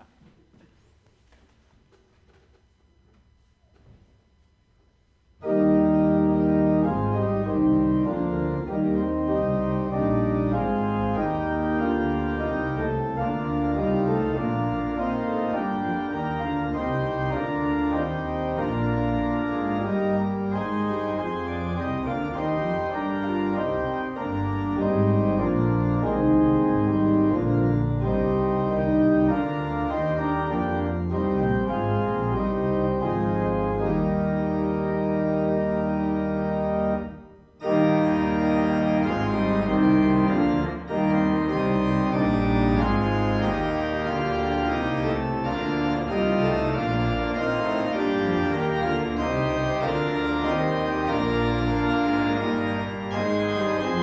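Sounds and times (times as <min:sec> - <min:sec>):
church organ chords: 0:05.4 - 0:54.0.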